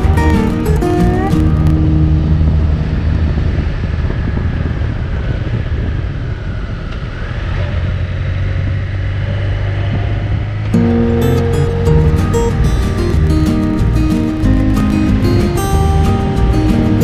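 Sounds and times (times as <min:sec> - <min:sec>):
wind noise on microphone: 0:00.0 - 0:17.0.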